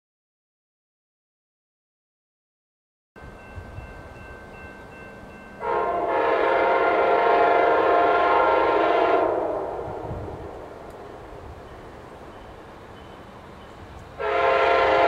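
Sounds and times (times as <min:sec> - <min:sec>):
locomotive air horn blast: 0:05.6 - 0:10.8, 0:14.2 - 0:15.0.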